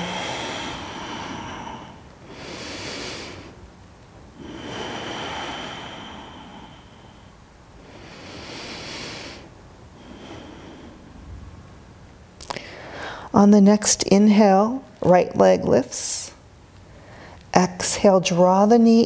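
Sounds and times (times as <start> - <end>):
deep slow breathing: 0.0 - 3.6, 4.3 - 11.6, 12.5 - 13.3.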